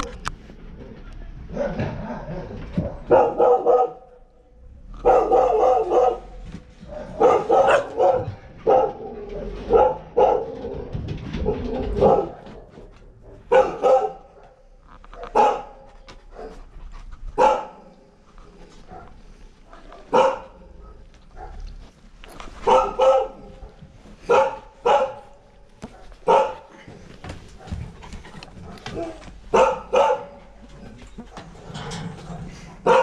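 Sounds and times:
dog barking: 1.5s - 4.2s, 5.0s - 10.6s, 11.4s - 16.6s, 17.4s - 18.0s, 18.9s - 21.6s, 22.6s - 26.8s, 28.6s - 30.6s.

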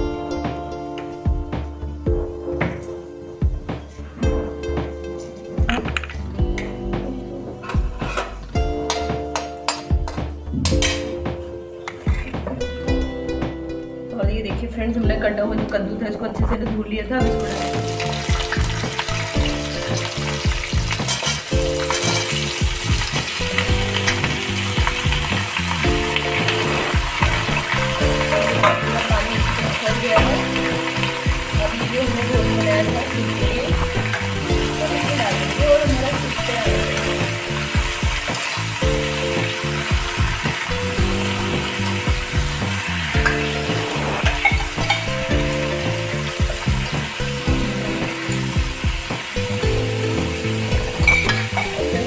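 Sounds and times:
background music with beat: 0.0s - 52.0s
pumpkin frying in hot oil: 17.3s - 52.0s.

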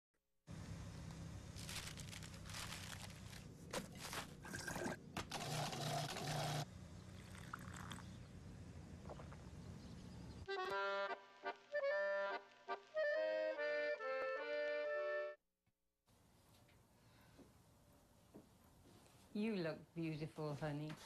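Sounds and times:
blender motor pulsing: 4.5s - 6.7s
liquid pouring and splashing: 7.2s - 8.1s.

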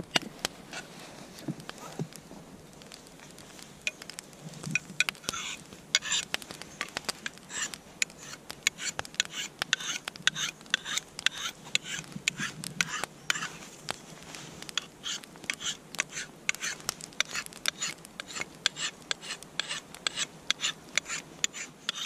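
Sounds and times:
sharpening stone rasping on axe: 5.0s - 6.2s, 7.5s - 13.5s, 14.8s - 22.0s.

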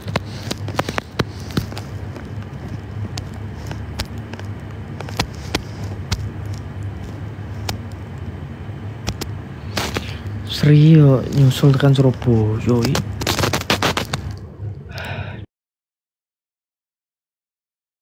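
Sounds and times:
small clicks and ticks: 0.0s - 8.3s
low mechanical hum: 0.0s - 15.5s.

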